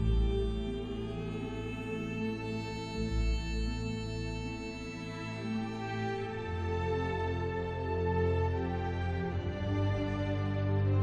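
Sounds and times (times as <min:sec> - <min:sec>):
slow sustained background music: 0:00.0 - 0:11.0.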